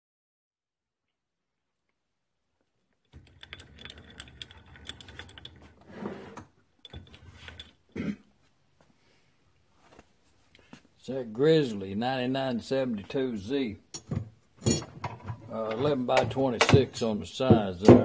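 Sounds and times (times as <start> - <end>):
lathe handwheel clicking and rattling: 3.1 - 5.9, 6.8 - 7.9.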